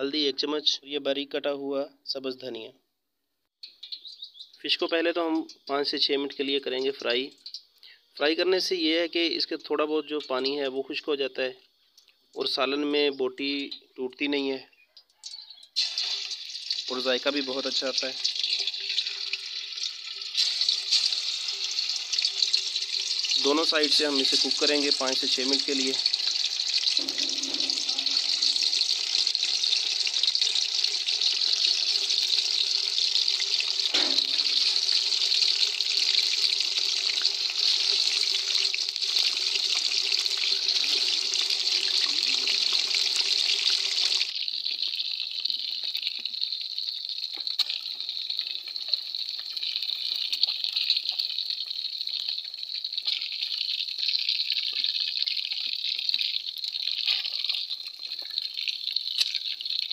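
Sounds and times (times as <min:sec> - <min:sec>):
fish sizzling in hot fat: 0:15.2 - 0:59.9.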